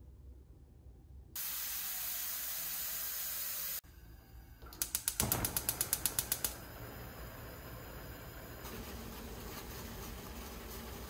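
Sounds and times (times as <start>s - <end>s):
water running into a pot: 1.4s - 3.8s
gas burner hissing: 1.4s - 11.0s
gas stove igniter clicking: 4.6s - 6.7s.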